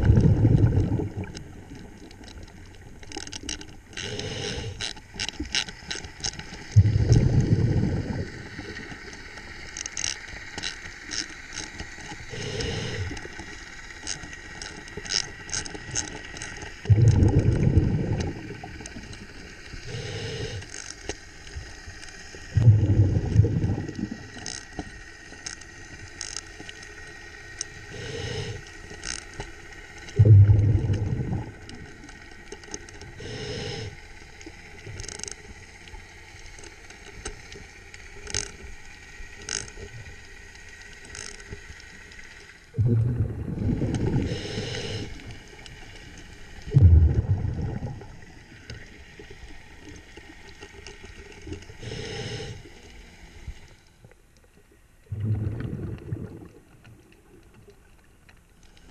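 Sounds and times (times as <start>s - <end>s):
underwater exhaled air bubbling: 0.0s - 4.8s, 6.6s - 9.6s, 12.2s - 13.6s, 16.6s - 20.7s, 22.3s - 24.4s, 27.7s - 28.6s, 30.0s - 35.0s, 42.7s - 50.2s, 51.1s - 52.9s, 55.0s - 57.9s
regulator inhalation hiss: 4.0s - 4.9s, 12.3s - 13.6s, 19.7s - 20.8s, 27.8s - 28.9s, 33.2s - 34.2s, 44.1s - 46.1s, 51.8s - 53.6s.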